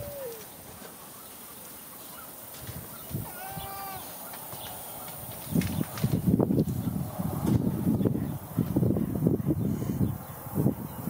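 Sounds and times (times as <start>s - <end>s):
low outdoor background: 0.0s - 11.0s.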